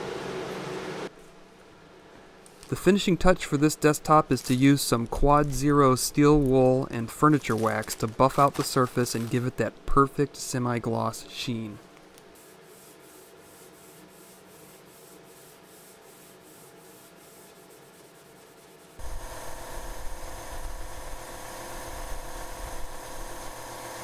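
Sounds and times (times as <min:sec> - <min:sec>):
steel wool rubbing wood: 0:12.4 - 0:19.0
cloth buffing wood: 0:12.4 - 0:19.1
machine hum: 0:19.0 - 0:24.0.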